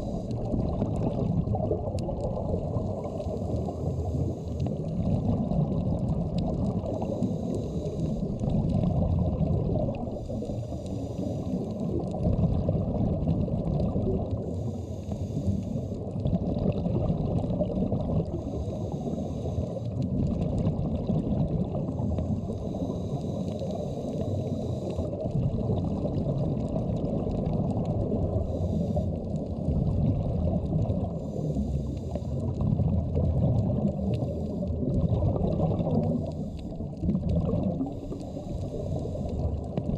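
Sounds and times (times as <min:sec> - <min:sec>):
scuba regulator breathing: 0:00.0 - 0:00.7, 0:02.9 - 0:05.0, 0:06.8 - 0:08.4, 0:09.9 - 0:12.0, 0:14.3 - 0:16.2, 0:18.2 - 0:20.1, 0:21.8 - 0:25.3, 0:28.2 - 0:29.5, 0:31.0 - 0:32.6, 0:33.8 - 0:35.0, 0:35.8 - 0:37.0, 0:37.7 - 0:39.8
muffled underwater rumble: 0:00.0 - 0:39.9.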